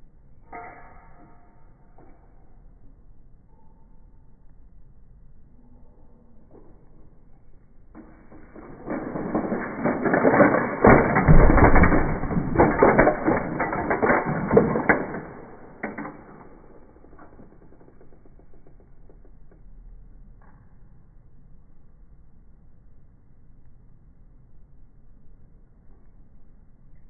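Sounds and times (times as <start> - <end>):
plastic bricks clattering on tiled floor: 8.0 - 18.0
toy vehicles crashing: 8.0 - 18.3.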